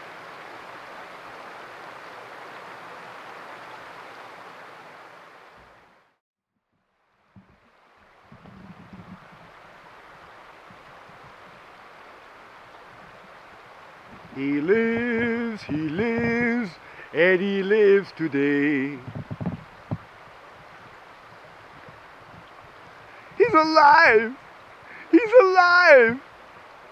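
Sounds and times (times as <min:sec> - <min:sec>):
mountain stream rushing: 0:00.0 - 0:06.2, 0:07.0 - 0:26.9
low knocks: 0:14.1 - 0:16.8, 0:19.0 - 0:20.1.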